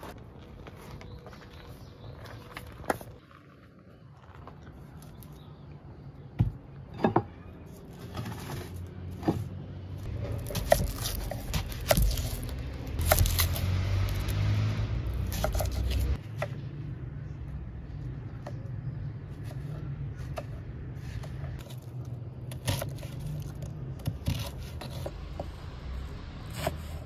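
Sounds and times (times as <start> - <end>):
onion skin scraping and rustling: 10.0 - 16.2, 19.3 - 25.6.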